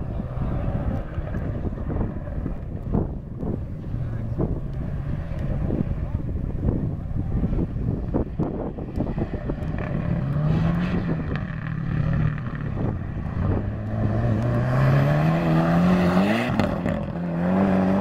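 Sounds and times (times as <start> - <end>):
rally car engine revving: 0.0 - 18.0.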